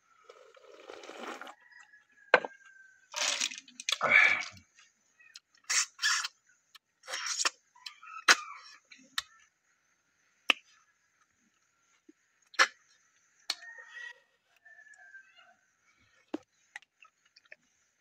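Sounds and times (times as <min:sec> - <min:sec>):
person slurping snails from shells: 0:00.3 - 0:01.6, 0:03.2 - 0:04.6.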